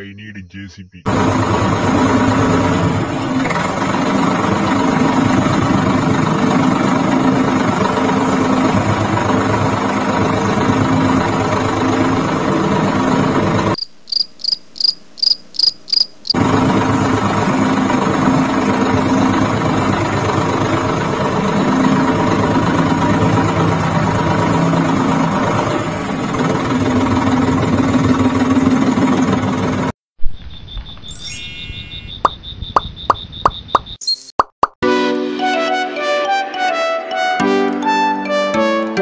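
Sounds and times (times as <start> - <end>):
short high chirps: 30.5 - 34.4.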